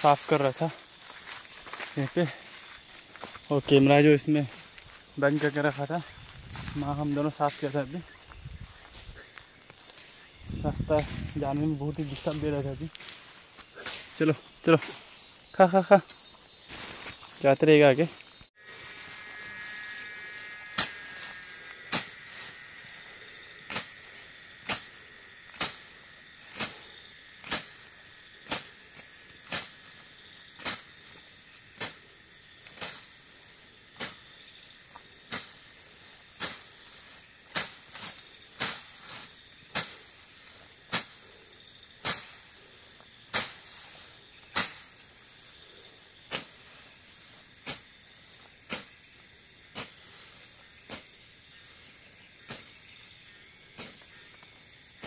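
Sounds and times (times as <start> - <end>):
machete slashing through grass: 27.4 - 28.7, 42.0 - 42.5.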